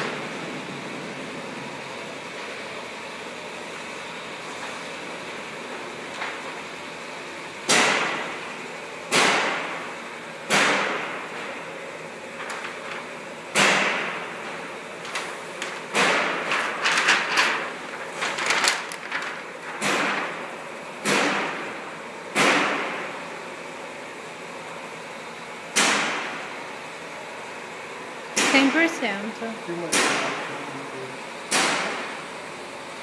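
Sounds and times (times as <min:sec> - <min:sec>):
cardstock sheets swishing: 0:15.0 - 0:20.2.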